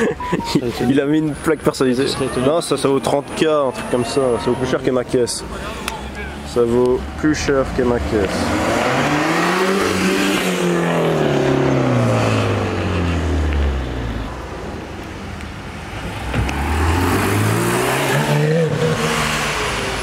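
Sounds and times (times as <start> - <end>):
car engine revving: 6.4 - 15.0, 15.7 - 20.0.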